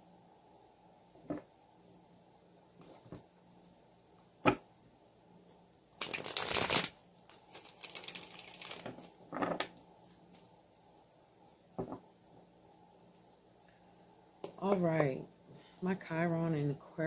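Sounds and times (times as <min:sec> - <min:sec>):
card rustling: 0:06.0 - 0:09.1.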